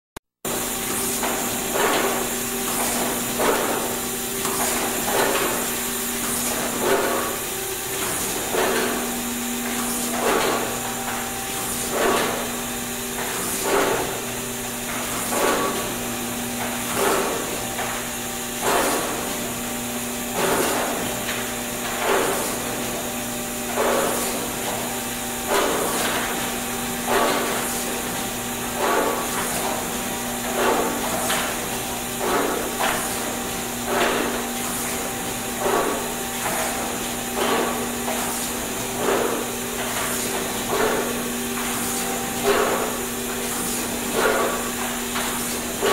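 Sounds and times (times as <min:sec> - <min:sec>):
motor hum and hiss: 0:00.5 - 0:45.9
printing machine knocking: 0:00.5 - 0:45.9.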